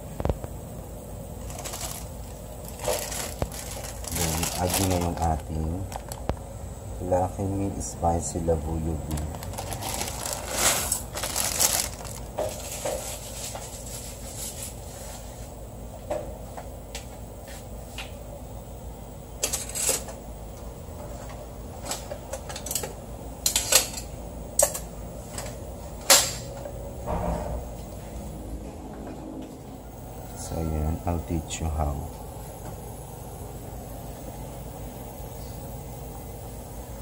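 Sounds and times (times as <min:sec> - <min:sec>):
low steady hum: 0:00.0 - 0:37.0
plastic wrapper crinkling: 0:01.4 - 0:06.4, 0:09.0 - 0:13.6.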